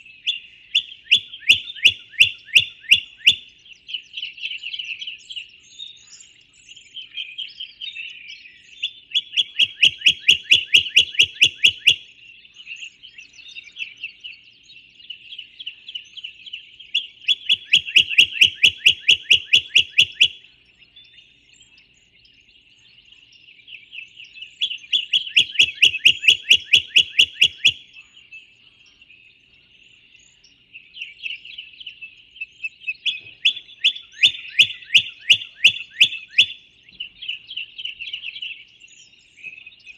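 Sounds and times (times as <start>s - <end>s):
bird singing rapid trill: 0.0s - 39.9s
songbirds chirping: 0.0s - 39.9s.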